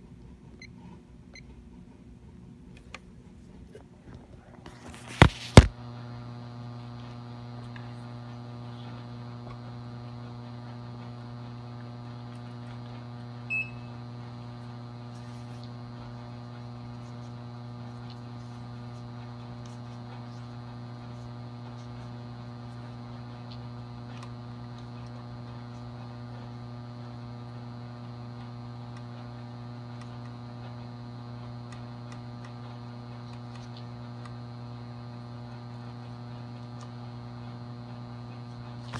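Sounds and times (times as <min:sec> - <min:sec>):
low electrical hum: 0:00.0 - 0:38.9
high beep: 0:13.5 - 0:13.9.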